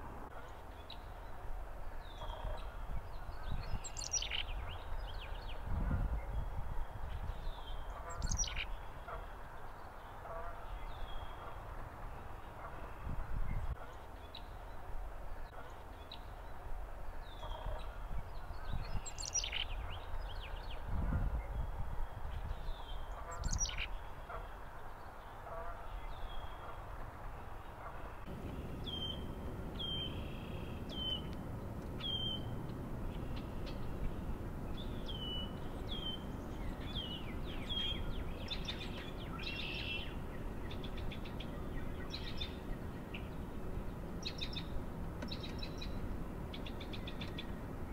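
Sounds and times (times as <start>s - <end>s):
songbirds chirping: 0.0s - 47.9s
wind on microphone: 1.1s - 9.2s, 12.6s - 13.9s, 16.3s - 24.9s
loud sweeping bird calls: 7.4s - 9.3s, 18.6s - 20.8s, 22.0s - 24.6s, 27.9s - 31.3s, 32.0s - 43.5s.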